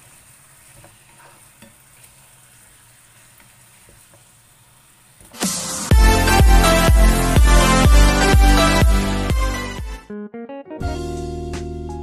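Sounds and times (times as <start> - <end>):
food sizzling in a frying pan: 0.0 - 6.3
spatula scraping and tapping: 0.7 - 2.1.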